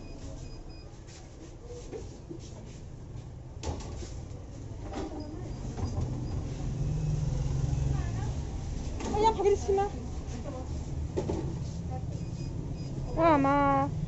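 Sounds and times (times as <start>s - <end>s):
low market rumble: 2.8s - 14.0s.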